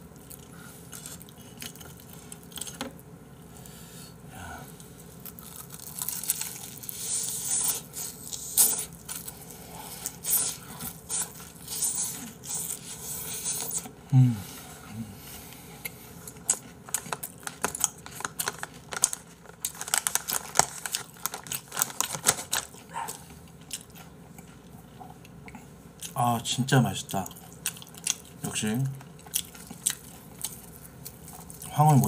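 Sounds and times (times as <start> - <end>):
wet chewing and smacking: 0.0 - 3.0, 27.1 - 31.7
crunching bites into fried chicken: 5.2 - 9.4, 16.3 - 24.0
person humming: 14.1 - 15.2.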